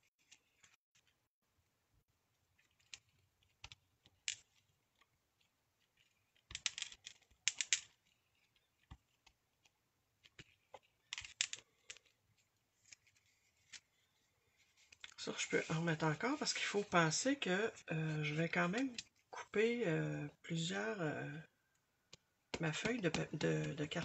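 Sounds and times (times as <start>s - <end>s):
paper rustling: 11.6s - 17.0s.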